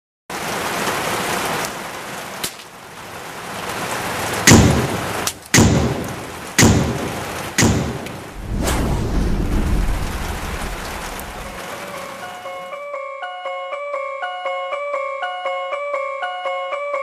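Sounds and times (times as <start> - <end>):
rain-like hiss: 0.3 - 12.8
heavy booming hits: 4.5 - 5.0, 5.6 - 11.6.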